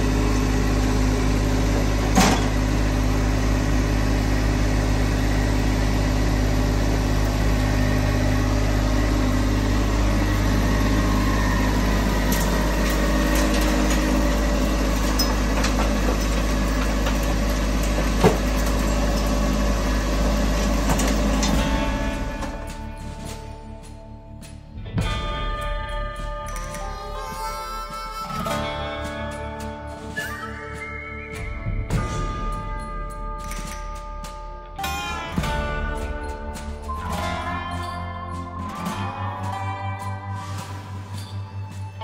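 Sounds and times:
loader engine running: 0.0 - 42.0.

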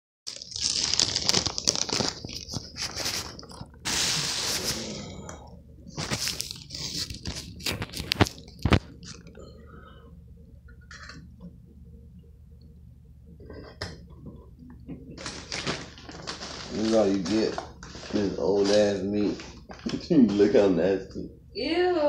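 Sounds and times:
rustling and scraping handling noise: 0.3 - 5.0, 5.9 - 9.3, 14.9 - 20.6.

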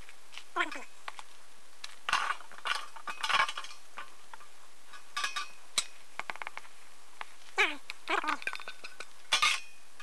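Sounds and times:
glass jar clink: 4.9 - 5.9, 8.4 - 9.8.

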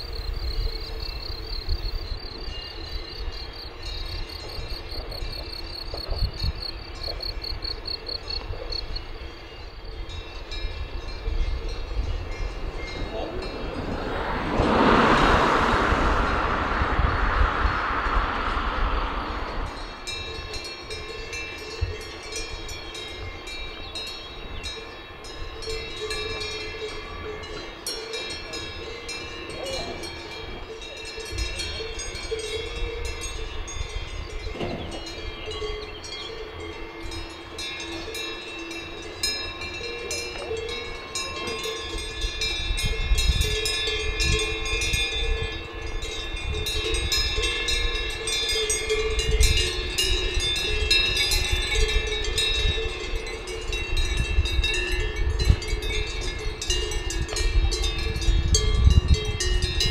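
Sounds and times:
cowbells clanking: 2.4 - 14.5, 19.7 - 59.9
low rumble: 12.0 - 21.0.

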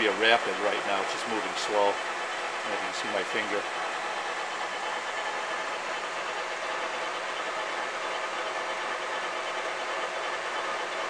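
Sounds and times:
lathe mechanical hum: 0.0 - 11.0.

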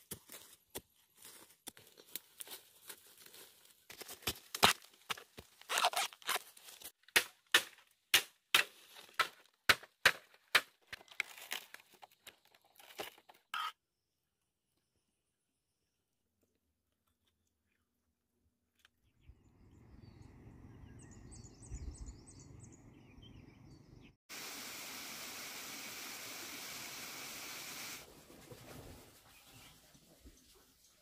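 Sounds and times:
stems and soil tearing: 2.0 - 7.0, 10.9 - 13.6.

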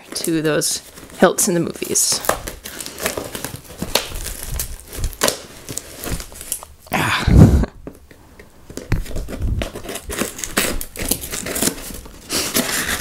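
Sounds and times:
cardboard and tape scraping: 0.0 - 6.8, 8.7 - 13.0
scissors cutting cardboard: 8.7 - 13.0.

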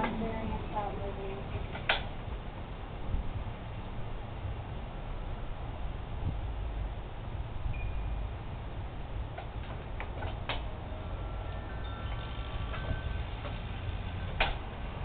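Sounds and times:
steady low rumble: 0.0 - 15.0
wind chimes ringing: 7.7 - 8.4, 10.7 - 15.0.

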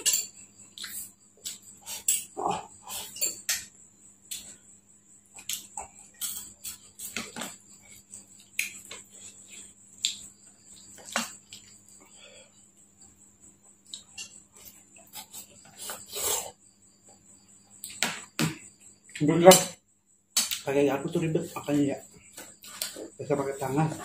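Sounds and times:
man chewing: 0.7 - 3.2, 5.3 - 12.0, 13.8 - 16.6.

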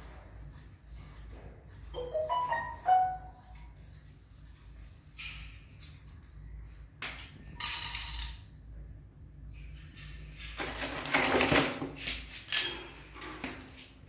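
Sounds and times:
spanner clinking on tiled floor: 12.5 - 13.2.

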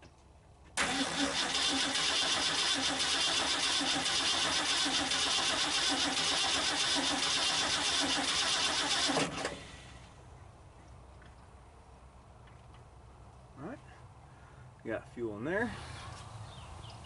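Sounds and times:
engine cranking on starter: 0.8 - 9.9.

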